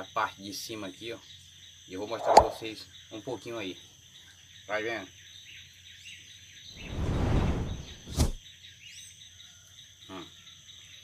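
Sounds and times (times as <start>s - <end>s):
insects buzzing: 0.0s - 11.0s
birds chirping: 1.1s - 8.4s
rushing whoosh: 6.8s - 8.4s.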